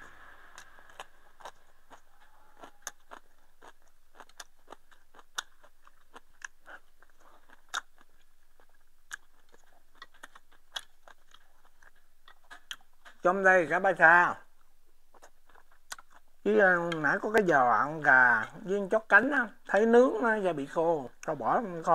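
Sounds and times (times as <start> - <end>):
person chewing rice: 0.0 - 13.3, 14.5 - 19.0.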